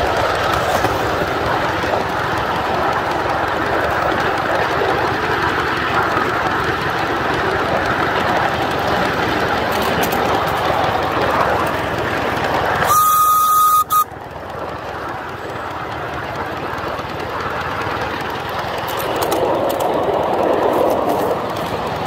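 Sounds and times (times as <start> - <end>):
steam locomotive running: 0.0 - 22.0
steam whistle blast: 12.8 - 14.1.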